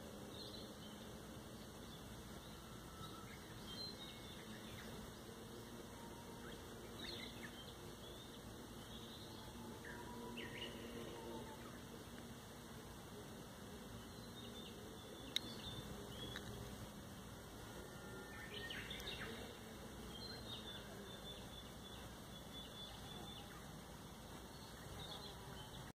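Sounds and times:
low background noise: 0.0s - 25.9s
faint bird chirps: 0.3s - 12.3s, 17.4s - 25.9s.

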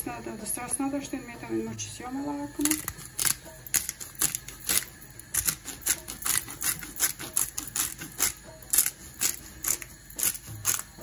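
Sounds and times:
pepper mill grinding: 2.5s - 11.0s.

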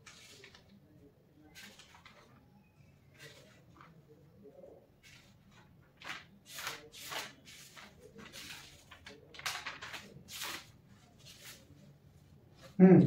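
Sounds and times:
paper pages rustling: 0.0s - 12.8s.

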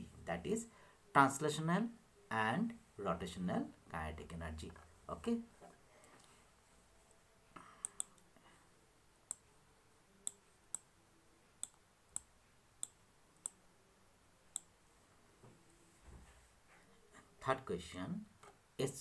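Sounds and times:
computer mouse clicks: 7.8s - 8.2s, 11.6s - 13.6s.

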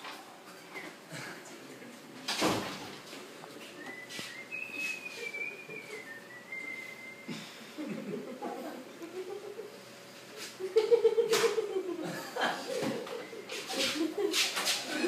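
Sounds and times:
person whistling long note: 3.8s - 7.3s.

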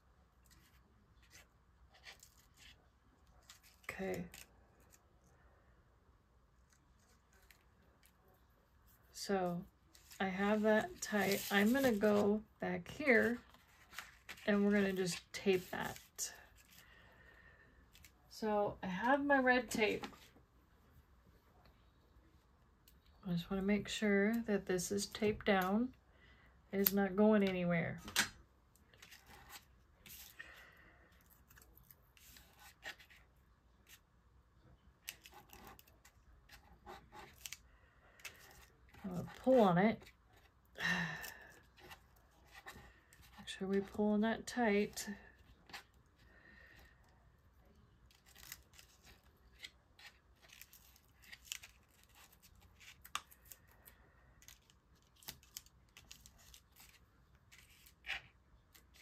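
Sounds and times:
paper rustling: 9.9s - 17.0s.

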